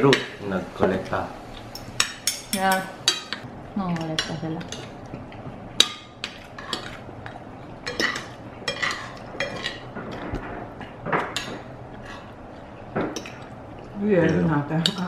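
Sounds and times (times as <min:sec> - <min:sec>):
cutlery clinking on plates: 0:07.8 - 0:10.4.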